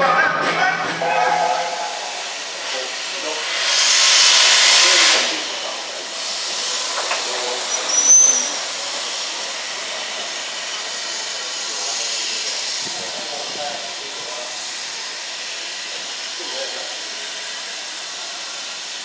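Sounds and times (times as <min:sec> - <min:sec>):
steam locomotive hissing: 0:00.6 - 0:19.0
high-pitched squeal: 0:06.3 - 0:09.1.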